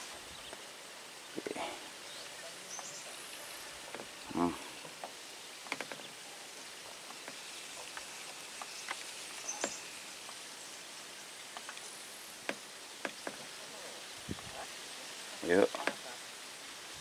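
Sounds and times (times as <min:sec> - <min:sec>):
faint steady hiss: 0:00.0 - 0:17.0
soft ticks: 0:11.5 - 0:13.4.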